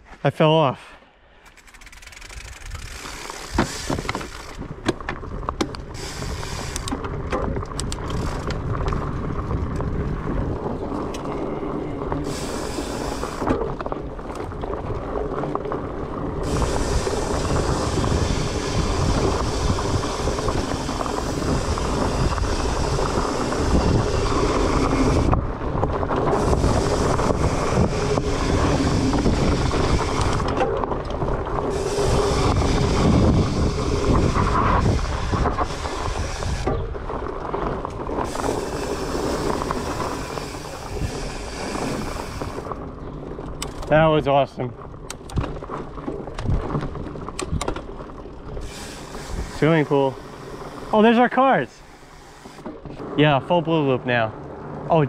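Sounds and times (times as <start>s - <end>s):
knocks and clicks over bumps: 1.4s - 5.9s, 6.7s - 12.3s, 42.0s - 48.7s
bike rattling over dirt: 1.4s - 55.0s
wind over microphone: 1.6s - 55.0s.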